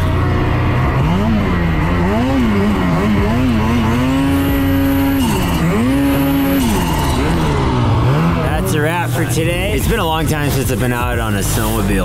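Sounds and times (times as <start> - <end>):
snowmobile engine revving: 0.0 - 12.0.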